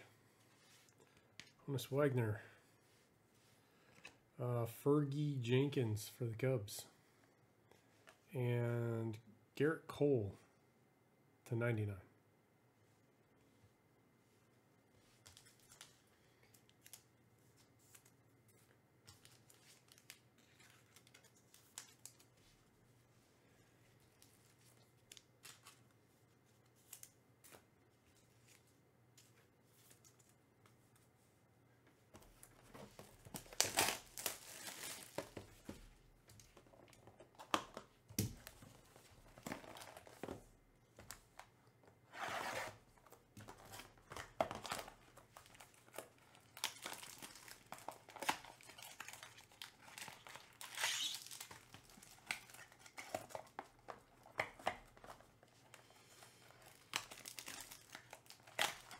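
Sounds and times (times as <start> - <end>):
wrapping tearing and crinkling: 19.1 - 22.4, 32.5 - 35.6, 42.8 - 58.9.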